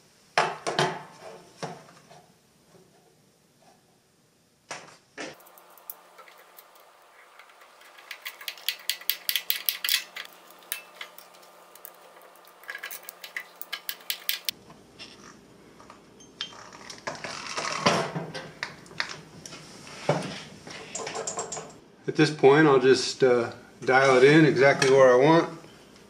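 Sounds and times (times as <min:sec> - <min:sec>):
metal clatter: 0:05.4 - 0:14.5.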